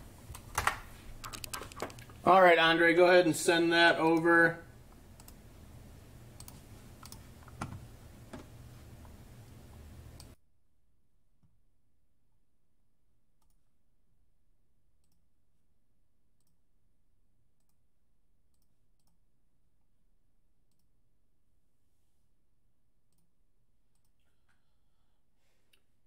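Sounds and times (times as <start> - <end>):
computer mouse clicks: 0.3 - 2.2, 5.2 - 5.4, 6.4 - 7.8, 10.2 - 10.4.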